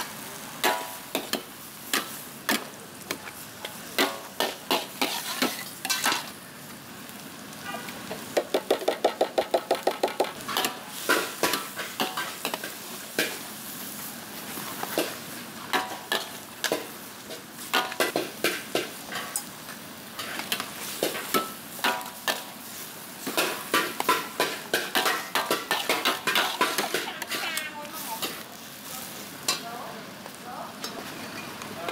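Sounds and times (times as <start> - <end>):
steady sizzle: 0.0 - 31.9
metal ladles clanking on wok: 0.6 - 6.3, 10.2 - 13.4, 15.7 - 19.5, 20.2 - 22.5, 23.2 - 28.4, 29.4 - 29.7.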